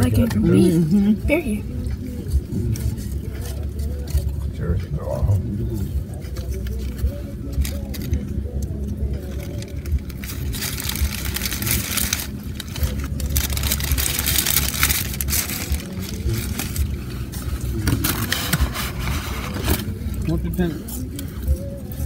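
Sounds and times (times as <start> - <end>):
low rumble inside car: 0.0 - 22.0
paper wrapper crinkling: 6.2 - 22.0.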